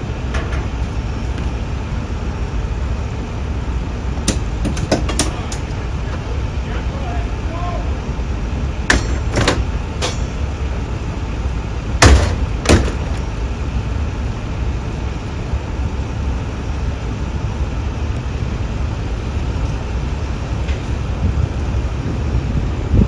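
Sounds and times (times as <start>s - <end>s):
vehicle engines idling: 0.0s - 23.0s
loud bangs: 11.9s - 13.2s.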